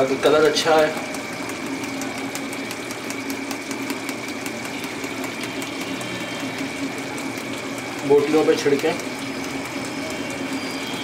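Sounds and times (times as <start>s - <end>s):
machine hum with high whine: 0.0s - 11.0s
pot simmering with pops: 0.0s - 11.0s.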